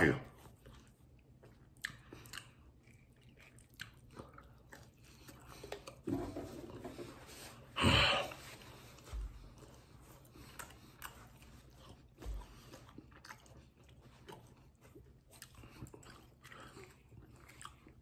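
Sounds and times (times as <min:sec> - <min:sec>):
mouth clicks of chewing: 0:00.4 - 0:06.0, 0:09.6 - 0:18.0.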